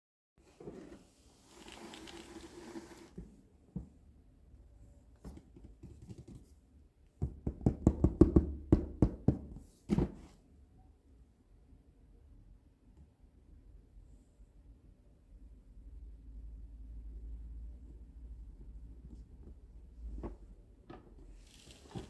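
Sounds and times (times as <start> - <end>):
fingers knocking on cardboard box: 7.2 - 9.5.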